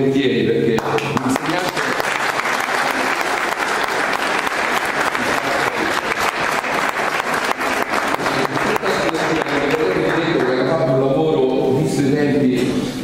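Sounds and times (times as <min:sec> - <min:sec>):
students applauding: 0:00.8 - 0:10.8.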